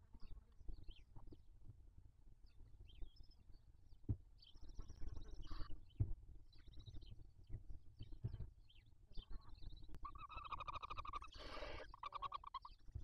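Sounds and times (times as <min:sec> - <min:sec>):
owl chicks chirping and chittering: 0:04.4 - 0:13.0
owl hiss: 0:10.4 - 0:12.6.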